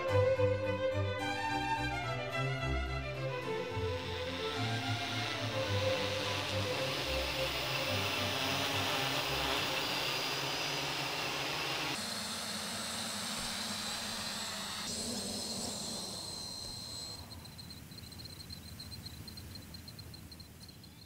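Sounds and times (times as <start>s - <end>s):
drone rotors whirring: 2.6s - 18.8s
crickets chirping: 3.5s - 21.0s.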